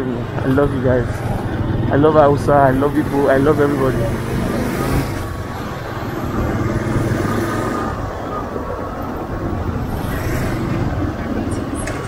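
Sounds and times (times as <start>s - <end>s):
motorcycle engine running: 0.0s - 12.0s
wind and road noise: 0.0s - 12.0s.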